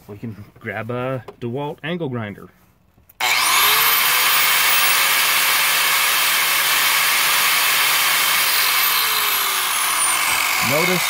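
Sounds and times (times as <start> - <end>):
angle grinder motor whine: 3.2 - 11.0.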